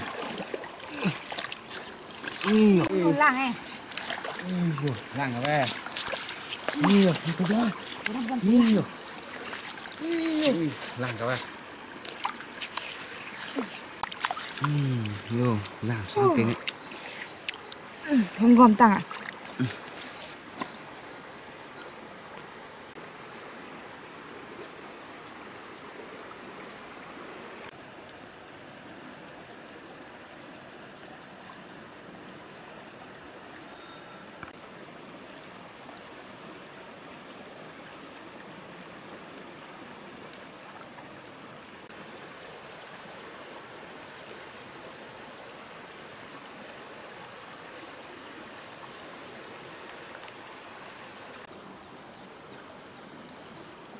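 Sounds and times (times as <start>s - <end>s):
high-pitched insect drone: 0.0s - 20.5s, 32.9s - 35.1s
stream running over stones: 0.0s - 23.1s, 29.5s - 53.9s
insect chirping in pulses: 0.0s - 53.9s.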